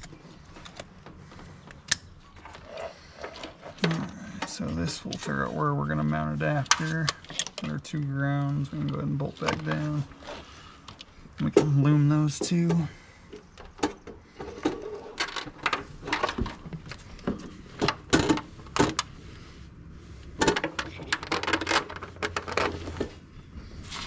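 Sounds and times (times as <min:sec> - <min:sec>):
plastic tubing clicks and rustles: 0:20.3 - 0:23.2.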